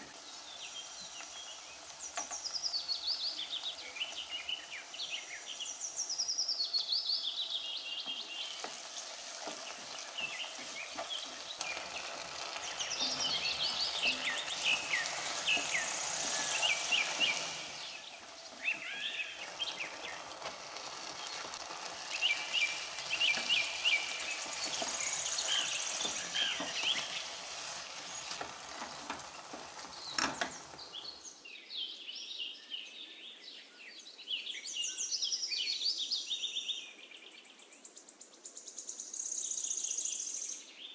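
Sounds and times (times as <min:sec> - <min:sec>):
vegetables sizzling in a frying pan: 0:00.0 - 0:31.4
birds chirping: 0:00.0 - 0:33.0
spoon stirring in a pan: 0:08.1 - 0:31.2.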